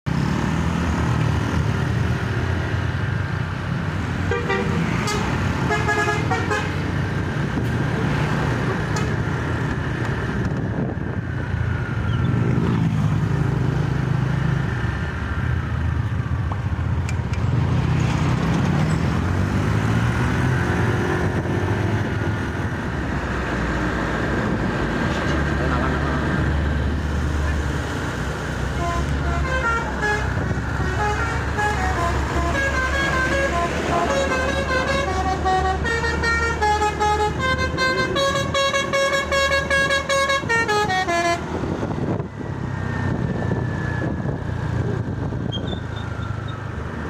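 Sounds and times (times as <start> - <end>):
engines and road traffic rumble: 0.0 - 47.0
large vehicles passing: 0.1 - 47.0
musical bus horn tune: 4.2 - 6.8, 8.9 - 9.2, 28.7 - 41.5.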